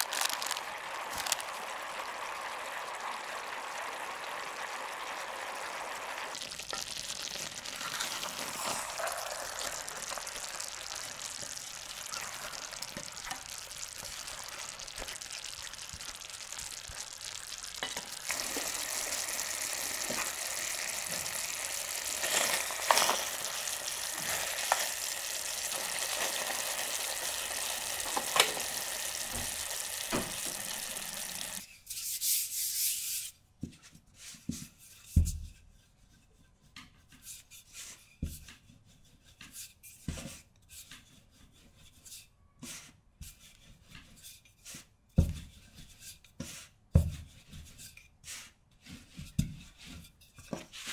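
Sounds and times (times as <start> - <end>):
apples sizzling in a pan: 0.0 - 31.7
spatula scraping and tapping: 33.7 - 50.9.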